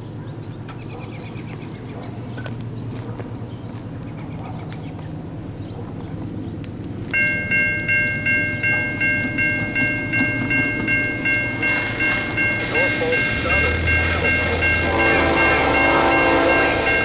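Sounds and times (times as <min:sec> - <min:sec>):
crossing warning bell ringing: 0:07.1 - 0:17.0.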